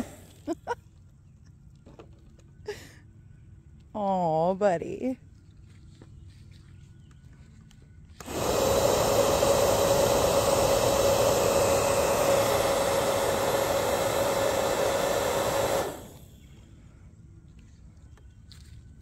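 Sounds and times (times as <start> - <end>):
bubble gun fan motor whirring: 0.0 - 0.5, 8.2 - 16.6.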